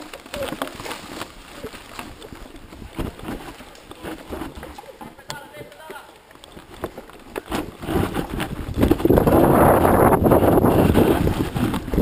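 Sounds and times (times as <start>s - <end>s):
wind buffeting microphone: 7.5s - 12.0s.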